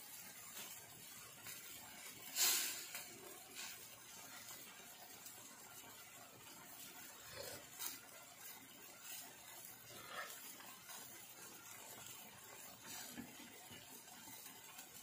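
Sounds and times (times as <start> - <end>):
sauce simmering and sizzling: 0.0 - 15.0
hissing spatter: 2.3 - 3.8.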